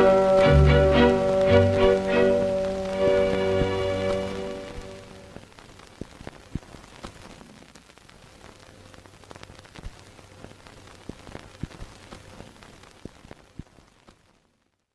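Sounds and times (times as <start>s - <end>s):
music: 0.0s - 5.4s
record crackle: 0.0s - 14.9s.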